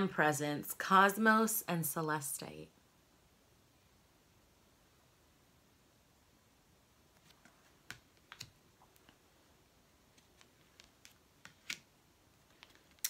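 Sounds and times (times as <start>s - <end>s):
cards clicking and tapping: 7.2s - 8.6s, 10.1s - 11.9s.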